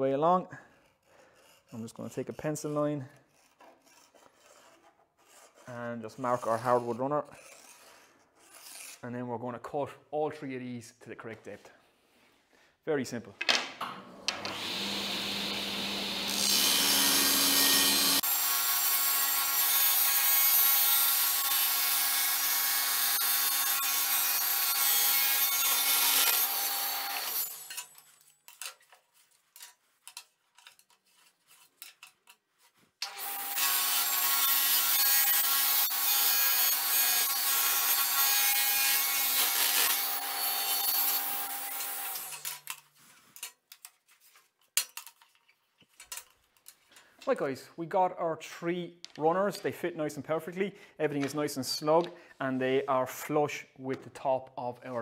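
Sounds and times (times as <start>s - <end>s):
table saw ripping wood: 13.8s - 28.3s, 33.0s - 42.9s.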